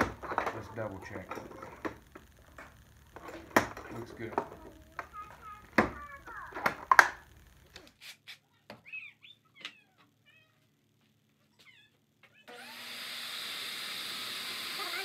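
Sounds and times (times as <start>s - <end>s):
shop vacuum running: 12.5s - 15.0s.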